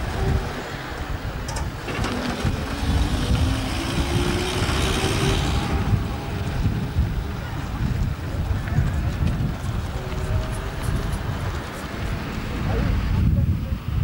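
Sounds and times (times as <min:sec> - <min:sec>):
lorry engine driving past: 0:01.9 - 0:08.3.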